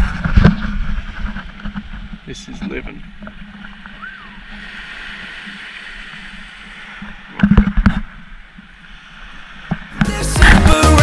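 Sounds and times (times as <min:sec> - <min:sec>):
small waves lapping on beach: 0:00.0 - 0:10.0
music: 0:10.0 - 0:11.0.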